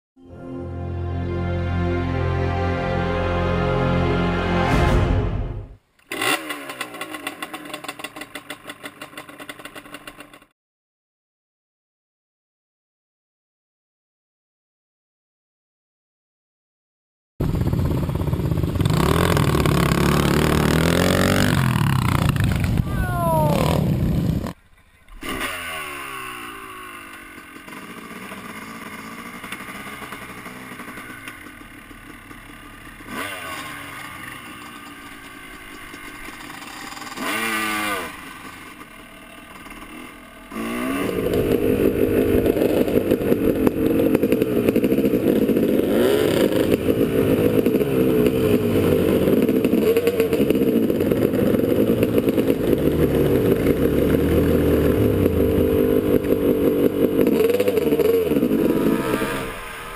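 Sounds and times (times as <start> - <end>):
dirt bike engine revving: 6.1 - 10.3, 17.4 - 24.6, 25.2 - 59.9.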